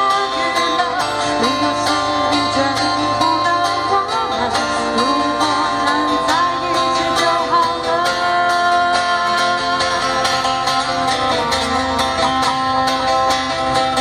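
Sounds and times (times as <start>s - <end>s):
person singing into microphone: 0.0s - 10.9s
acoustic guitar strummed: 0.0s - 14.0s.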